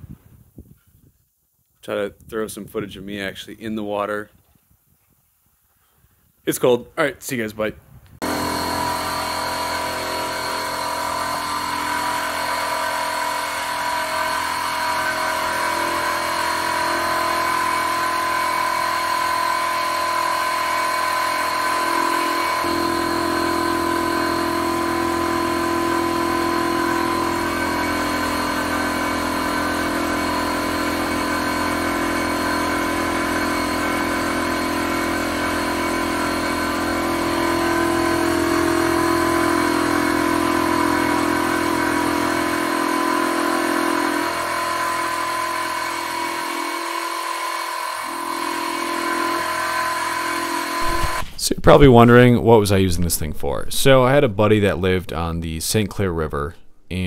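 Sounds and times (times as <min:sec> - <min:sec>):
air compressor running: 0:08.2 - 0:51.8
low hum: 0:50.8 - 0:54.8.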